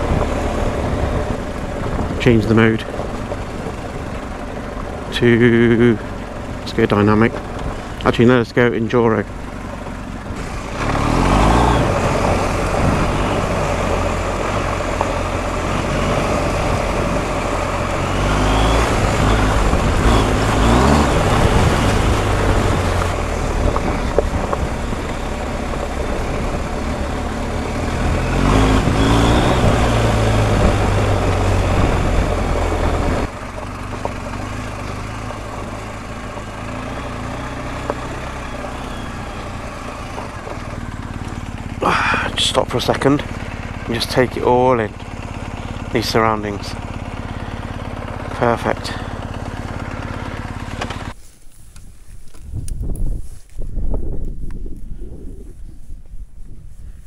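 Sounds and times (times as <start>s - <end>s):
motorcycle engine accelerating: 0.0s - 57.0s
wind noise on microphone: 12.7s - 13.4s, 51.6s - 57.0s.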